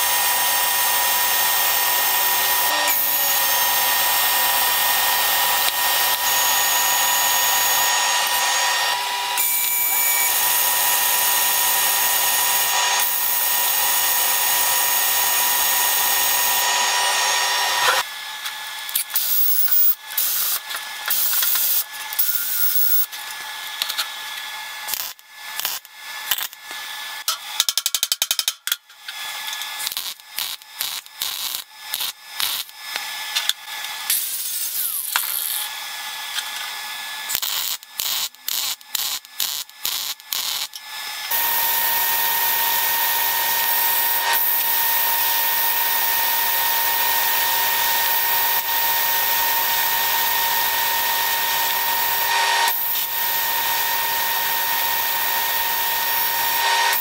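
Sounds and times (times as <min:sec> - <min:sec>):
power tool whining: 0:00.0 - 0:27.2, 0:29.1 - 0:57.0
welder crackling: 0:18.9 - 0:23.9, 0:24.9 - 0:26.8, 0:29.5 - 0:35.7, 0:37.3 - 0:57.0.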